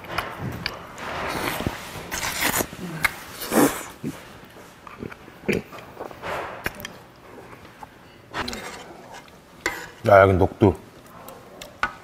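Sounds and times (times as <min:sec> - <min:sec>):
person slurping and chewing: 0:01.3 - 0:04.2.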